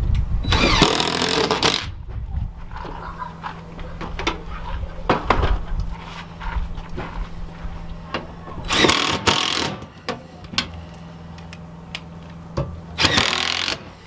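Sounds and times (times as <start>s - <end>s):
power driver running screws: 0.5s - 1.9s, 8.7s - 9.9s, 13.0s - 14.0s.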